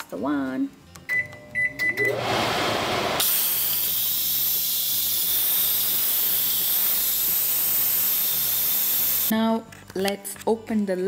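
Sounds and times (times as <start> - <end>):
steam hissing from valve: 3.2 - 9.3.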